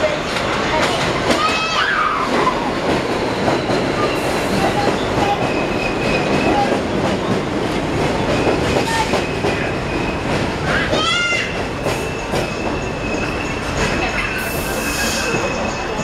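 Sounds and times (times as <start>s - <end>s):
subway train rumbling: 0.0s - 16.0s
high wheel squeals: 8.4s - 16.0s.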